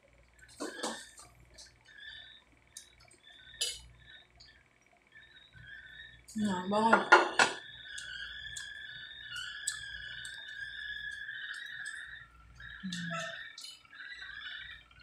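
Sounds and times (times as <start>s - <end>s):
steady high-pitched tone: 0.0s - 15.0s.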